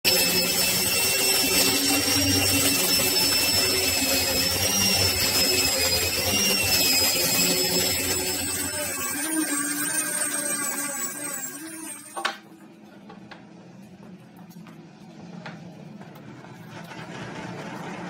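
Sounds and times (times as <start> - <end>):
orbital sander whining: 0.1 - 12.4.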